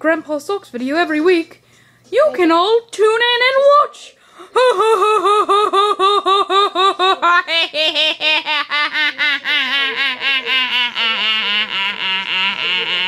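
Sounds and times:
person laughing rapidly: 0:04.6 - 0:13.0.

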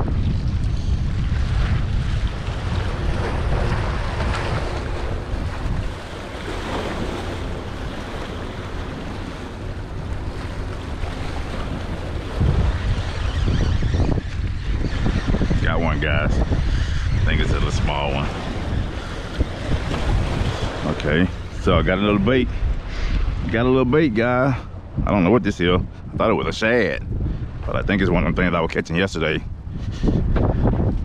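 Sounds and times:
wind buffeting microphone: 0:00.0 - 0:31.0
waves splashing against rocks: 0:01.5 - 0:12.8.

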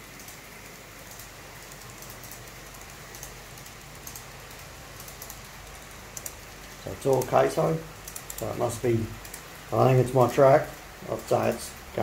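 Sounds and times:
model train running hiss: 0:05.9 - 0:12.0.

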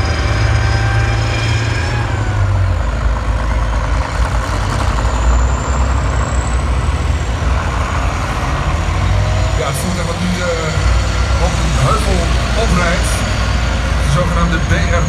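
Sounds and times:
tank engines rumbling: 0:00.0 - 0:15.0.

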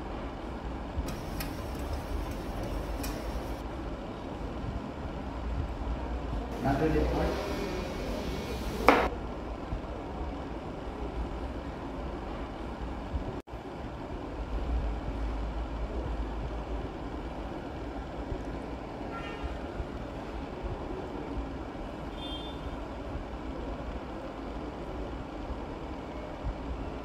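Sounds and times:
low rumbling background noise: 0:00.0 - 0:27.0.

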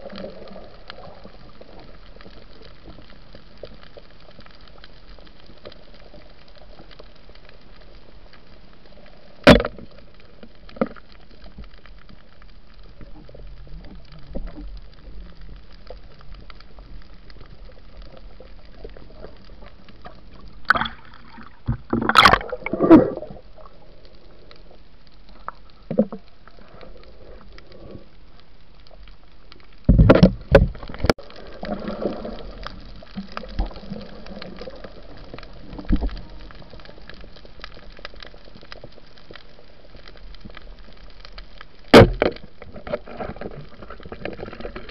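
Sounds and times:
muffled underwater hiss: 0:00.0 - 0:44.9
splashing and bubbling: 0:12.8 - 0:24.7, 0:29.7 - 0:40.8.

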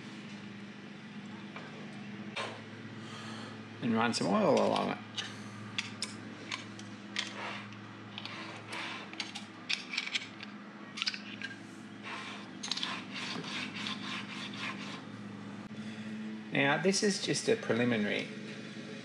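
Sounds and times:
metal table scraping on slide: 0:07.2 - 0:09.3, 0:12.0 - 0:15.1.

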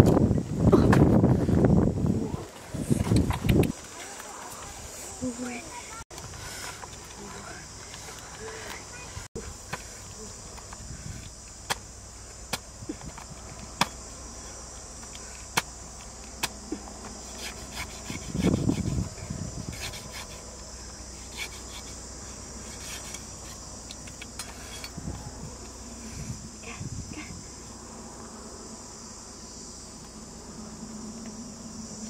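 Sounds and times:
crickets chirping: 0:00.0 - 0:32.0
cleaver chopping fruit husk: 0:09.6 - 0:14.1, 0:14.8 - 0:20.5, 0:21.2 - 0:22.0, 0:22.6 - 0:25.0.

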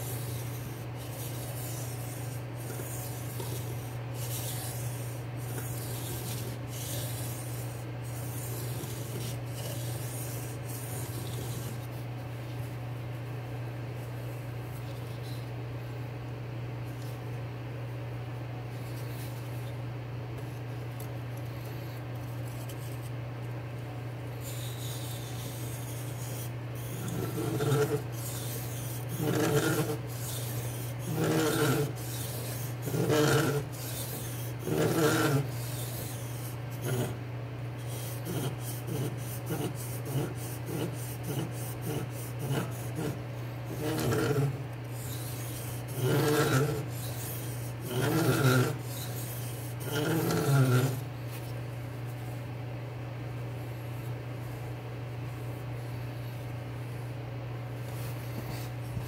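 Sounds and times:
knife rasping on whetstone: 0:00.0 - 0:12.0, 0:22.2 - 0:23.1, 0:24.4 - 0:37.2, 0:37.8 - 0:51.5
steady low hum: 0:00.0 - 0:59.0.

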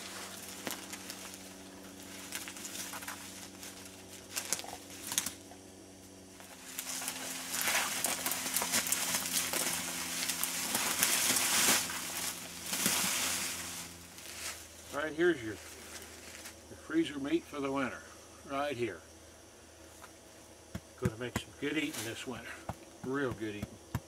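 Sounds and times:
body dragged over leaves: 0:00.0 - 0:05.3, 0:06.4 - 0:16.6
footsteps on dry leaves: 0:00.0 - 0:05.4, 0:06.4 - 0:16.6.

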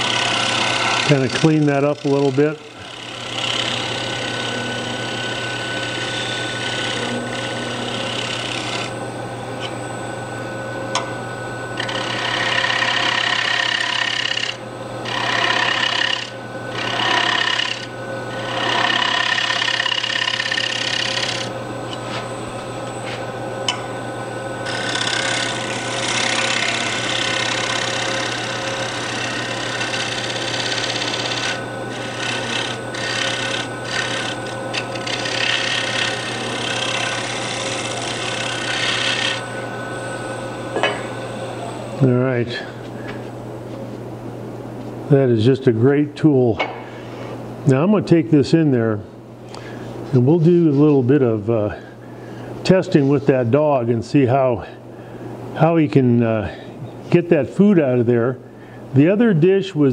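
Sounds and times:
scraper shaving wood on lathe: 0:00.0 - 0:09.0, 0:11.8 - 0:21.5, 0:24.6 - 0:39.8
steady low hum: 0:00.0 - 0:59.9.

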